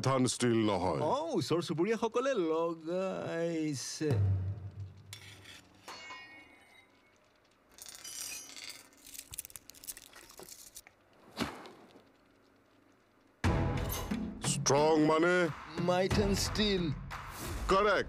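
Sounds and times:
scraping of steel bar: 5.1s - 7.0s.

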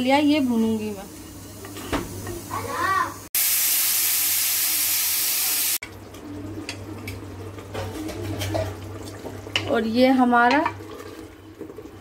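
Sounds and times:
pressure cooker whistle hissing steam: 3.4s - 5.8s.

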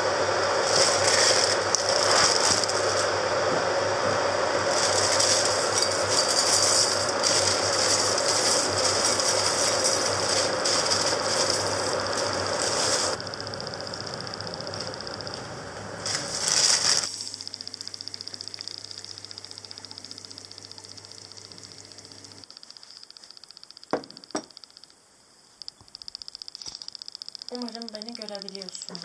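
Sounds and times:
plastic bag crinkling: 0.6s - 3.1s, 4.6s - 13.2s, 16.0s - 17.8s
cornflakes rattling into a bowl: 4.7s - 13.1s.

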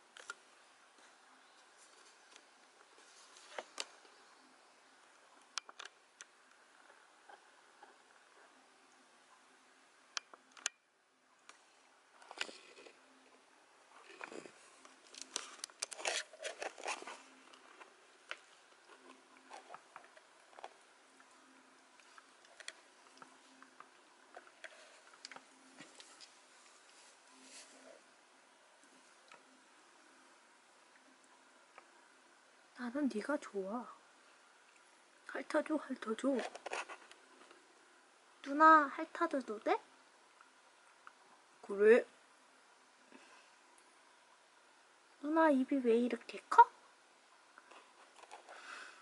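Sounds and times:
soft clicks and rustles: 0.0s - 9.0s, 10.1s - 28.2s, 36.0s - 37.8s, 47.5s - 49.0s.

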